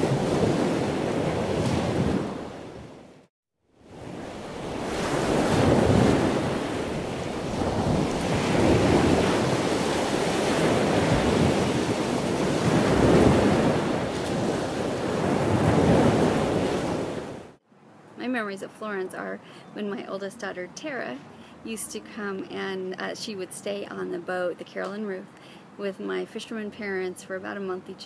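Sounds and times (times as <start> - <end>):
surf: 0.0 - 2.9, 3.9 - 17.6
rushing wind: 0.0 - 3.2, 3.8 - 18.0
wind buffeting microphone: 4.0 - 17.4.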